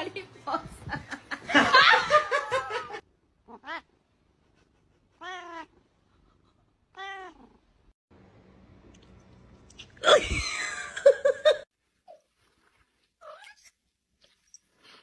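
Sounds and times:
cat meowing: 0:03.5 - 0:03.9, 0:05.2 - 0:05.7, 0:06.9 - 0:07.6.

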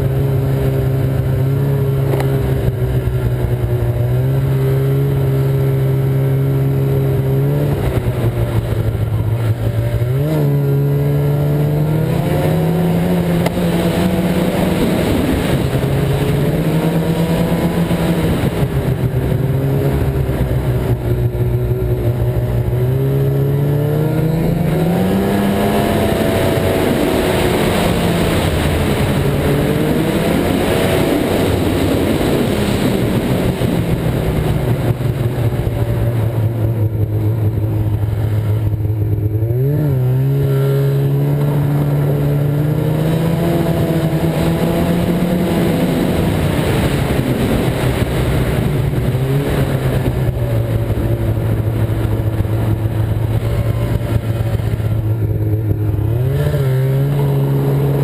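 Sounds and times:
snowmobile engine revving: 0:00.0 - 0:58.0
steady rush of noise: 0:00.0 - 0:58.0.

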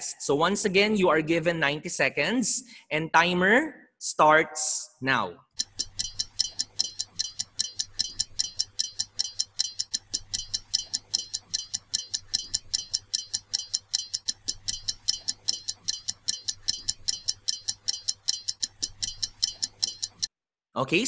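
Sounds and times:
countdown timer ticking: 0:05.5 - 0:20.3.

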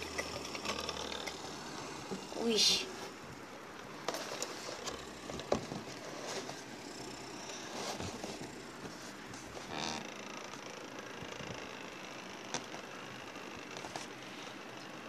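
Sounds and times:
spinning top whirring: 0:00.0 - 0:03.2.

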